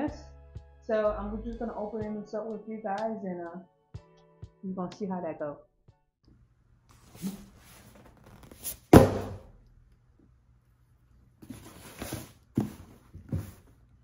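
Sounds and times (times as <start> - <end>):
cardboard box thump on glass: 8.9 - 9.4.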